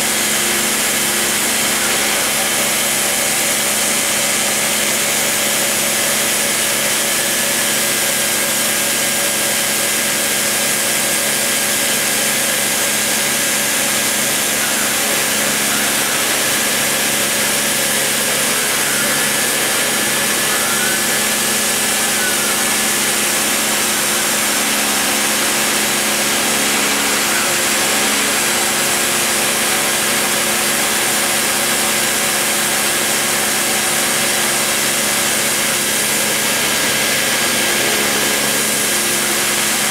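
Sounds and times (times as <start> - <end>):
rotary tool routing wood: 0.0 - 39.9.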